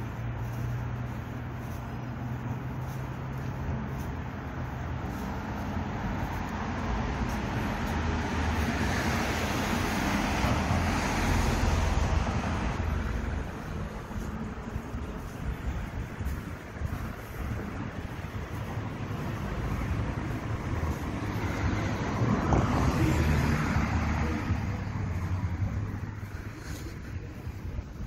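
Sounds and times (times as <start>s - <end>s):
car passing: 0.0s - 28.0s.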